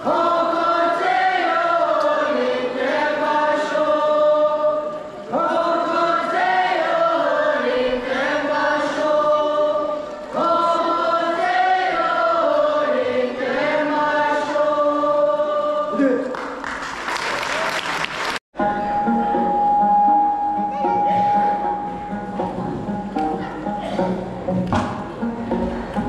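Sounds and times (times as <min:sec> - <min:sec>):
children singing in unison: 0:00.0 - 0:16.0.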